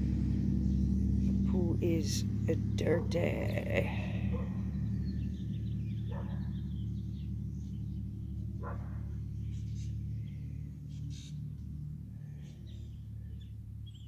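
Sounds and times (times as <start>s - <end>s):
electric motor hum: 0.0s - 8.8s
birds chirping: 0.0s - 14.0s.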